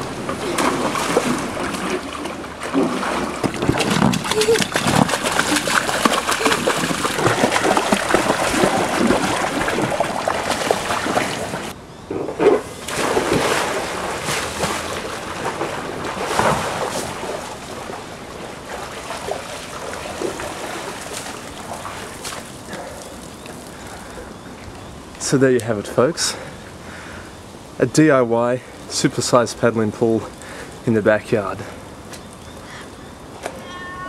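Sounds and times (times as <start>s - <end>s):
water splashing in pool: 0.0s - 11.8s, 12.6s - 24.3s.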